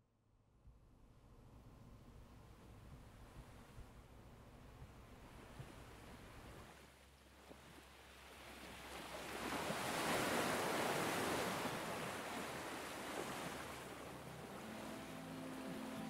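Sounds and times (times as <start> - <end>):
ocean wave washing on beach: 7.4 - 16.0.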